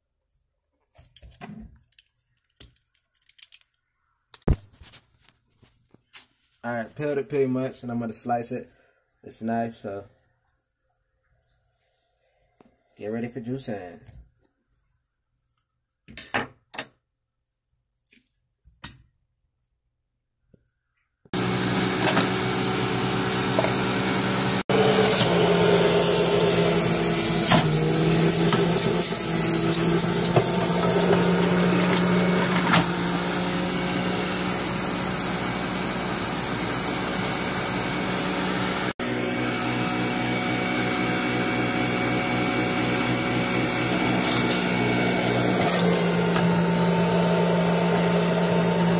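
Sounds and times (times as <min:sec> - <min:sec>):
juicer motor whining: 0:21.4 - 0:48.9.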